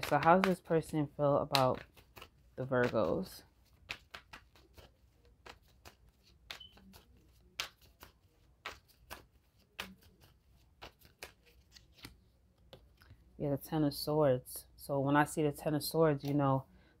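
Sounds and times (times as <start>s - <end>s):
cards being shuffled: 0.0s - 13.3s, 16.1s - 16.4s.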